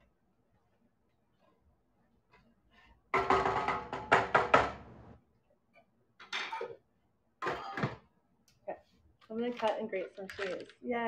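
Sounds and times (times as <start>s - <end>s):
cookware clattering: 6.2s - 6.8s.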